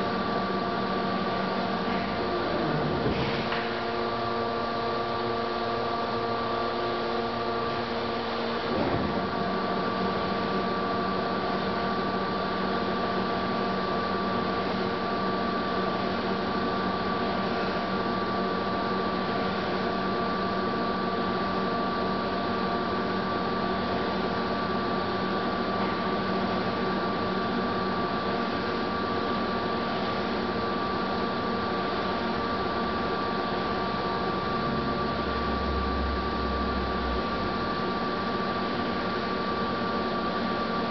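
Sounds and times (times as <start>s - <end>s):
lathe running with gear whine: 0.0s - 40.9s.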